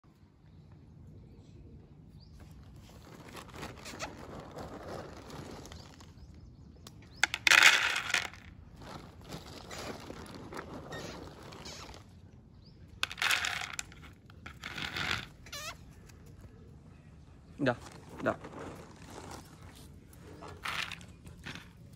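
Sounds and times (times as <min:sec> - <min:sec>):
kibble rattling into plastic bowl: 0:07.2 - 0:12.0, 0:13.0 - 0:15.8, 0:20.3 - 0:21.9.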